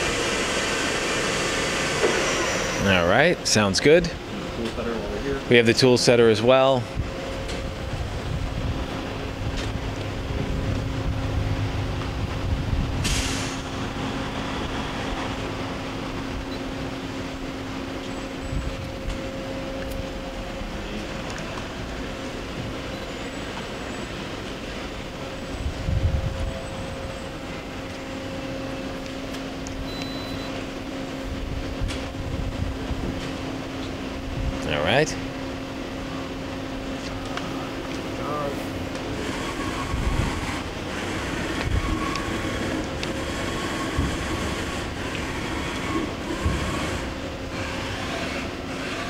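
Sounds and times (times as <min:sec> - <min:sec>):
machine humming and rumbling: 0:00.0 - 0:49.0
short hiss: 0:13.0 - 0:13.7.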